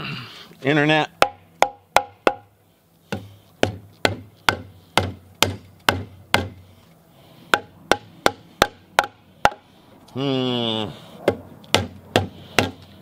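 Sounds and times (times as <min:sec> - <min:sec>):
rubber mallet pounding timber: 0:01.2 - 0:06.6, 0:07.5 - 0:09.6, 0:11.2 - 0:12.9.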